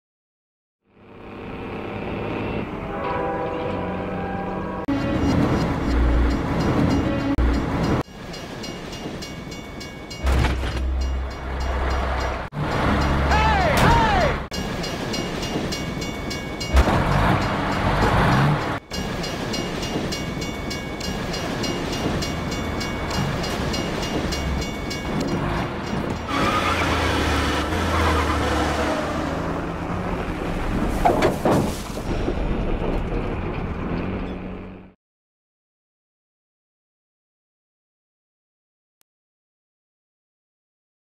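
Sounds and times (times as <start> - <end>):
car and truck engines running: 0.8 - 4.2, 4.9 - 8.0, 10.2 - 35.0
background music: 2.8 - 28.2.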